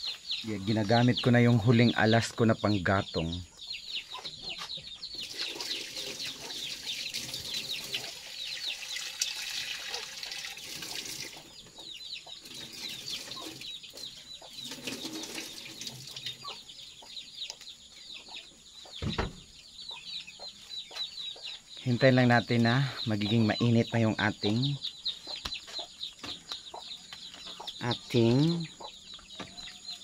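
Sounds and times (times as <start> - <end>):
chickens clucking: 0.0 - 30.0
dull knock: 19.0 - 19.4.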